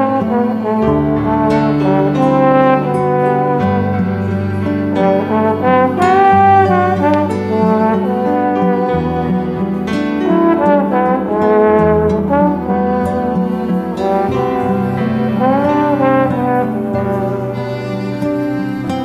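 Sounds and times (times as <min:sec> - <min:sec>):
backing track: 0:00.0 - 0:19.0
slide trombone melody: 0:00.0 - 0:19.0.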